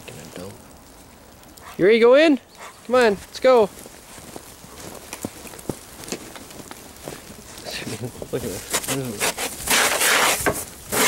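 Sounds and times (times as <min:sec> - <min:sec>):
footsteps crunching through snow: 0:02.6 - 0:11.0.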